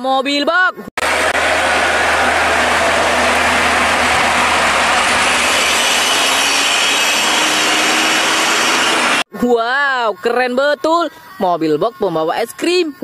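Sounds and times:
truck diesel engine running: 1.0s - 9.2s.

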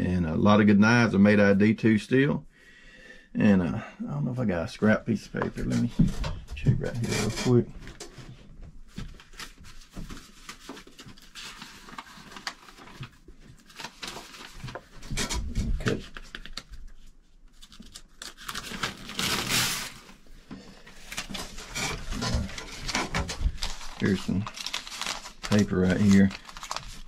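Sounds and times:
paper rustling: 8.9s - 27.0s.

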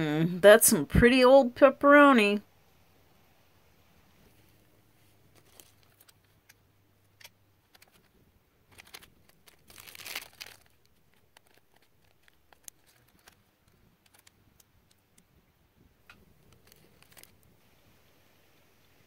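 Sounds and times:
packaging and foil crinkling: 5.3s - 6.6s, 7.2s - 15.1s, 16.4s - 17.5s.

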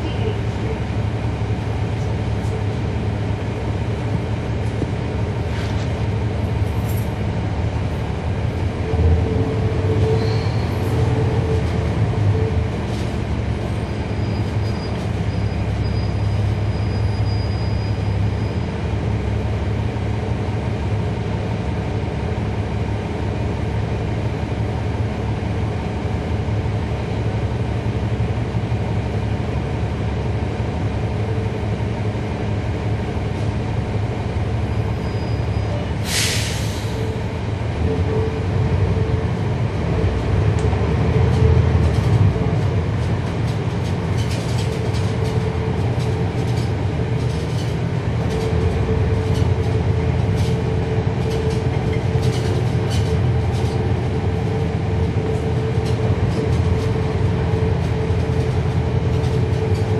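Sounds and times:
bus diesel engine droning: 0.0s - 59.9s.

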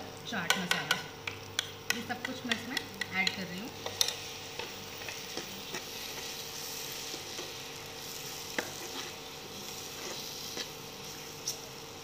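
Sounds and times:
food sizzling in oil: 0.0s - 12.0s
spoon knocking pan: 0.4s - 6.3s.

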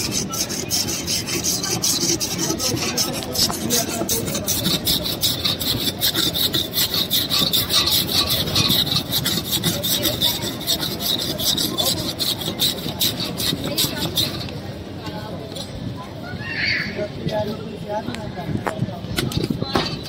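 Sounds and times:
metal scraper rasping on ice: 0.0s - 14.7s.

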